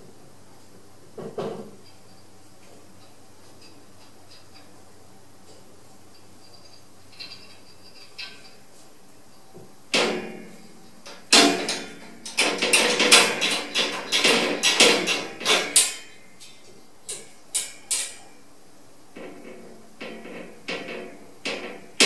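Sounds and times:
wire cage door rattling: 10.0 - 16.2.

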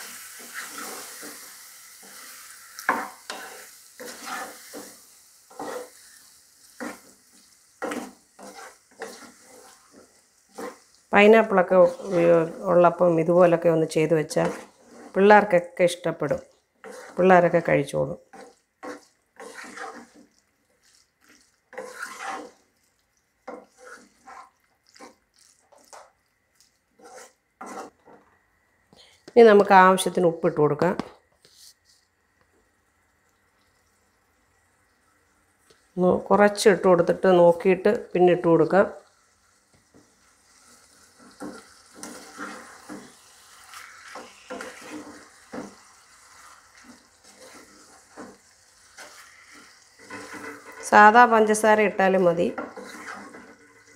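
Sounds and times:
soft sizzle: 0.0 - 53.9
wooden spatula scraping a pot: 0.1 - 28.3, 39.9 - 53.9.

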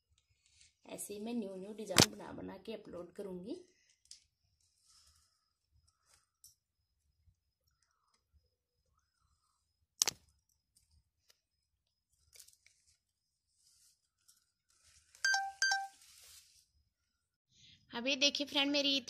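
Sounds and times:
plastic cord rustling: 10.0 - 15.3, 15.9 - 16.7
short high tones: 15.2 - 16.0.

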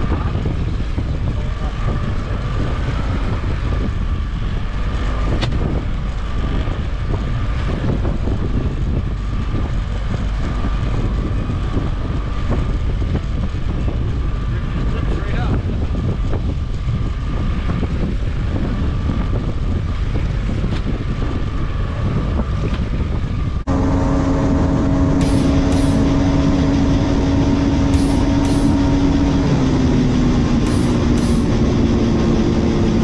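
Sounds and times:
boat motor running: 0.0 - 33.0
wind on microphone: 0.0 - 33.0
held tones stepping down: 23.7 - 31.9.

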